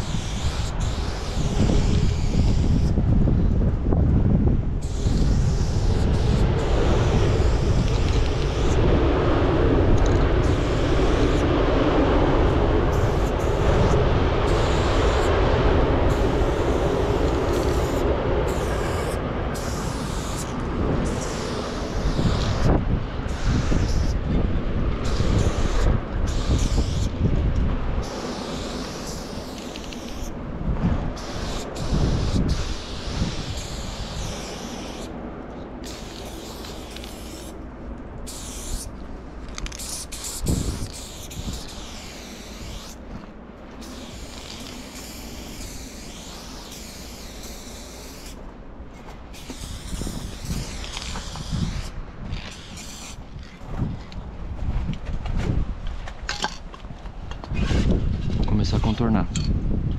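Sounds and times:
spray paint can hissing: 0:00.0 - 0:03.0, 0:04.8 - 0:08.9, 0:09.9 - 0:11.5, 0:12.4 - 0:24.2, 0:25.0 - 0:27.2, 0:28.0 - 0:30.4, 0:31.1 - 0:35.2, 0:35.8 - 0:37.6, 0:38.2 - 0:43.1, 0:43.8 - 0:48.4, 0:49.3 - 0:53.6
wind noise on microphone: 0:00.0 - 0:59.9
low rumbling: 0:01.5 - 0:28.1.

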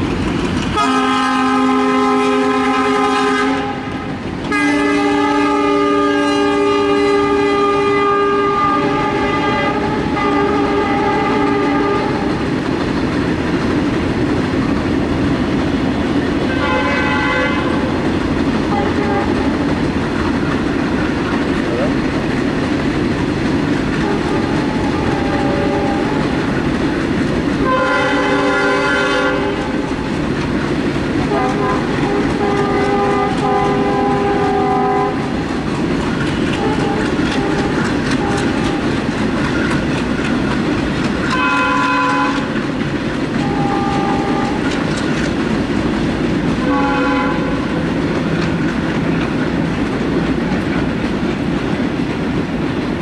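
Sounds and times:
train wheels clickety-clack: 0:00.0 - 0:53.0
diesel locomotive horn: 0:00.7 - 0:12.5, 0:16.4 - 0:18.0, 0:18.6 - 0:19.8, 0:24.0 - 0:26.6, 0:27.6 - 0:30.1, 0:31.2 - 0:39.7, 0:41.2 - 0:42.7, 0:43.4 - 0:45.1, 0:46.6 - 0:48.0.

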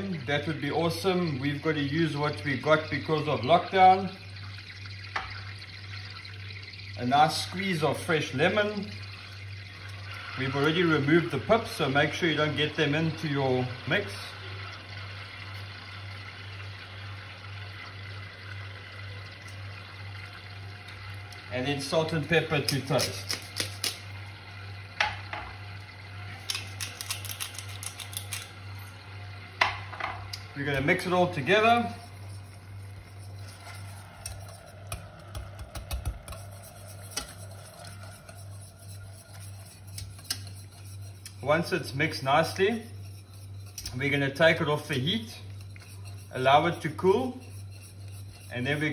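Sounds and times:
steady low hum: 0:00.0 - 0:48.9
whisk clicking and scraping in pot: 0:20.9 - 0:24.2, 0:26.3 - 0:28.7, 0:29.6 - 0:48.9.

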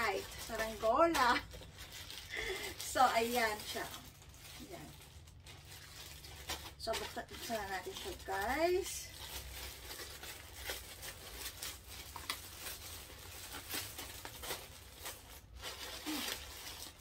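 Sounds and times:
plastic bag tearing and crinkling: 0:00.0 - 0:17.0.

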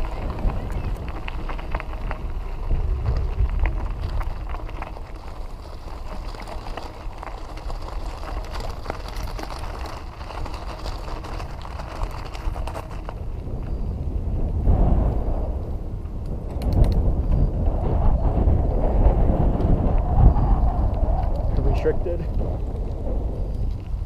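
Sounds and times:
bicycle rattling: 0:00.0 - 0:24.0
bicycle tyres crunching on gravel: 0:00.0 - 0:24.0
wind on microphone: 0:00.0 - 0:24.0.

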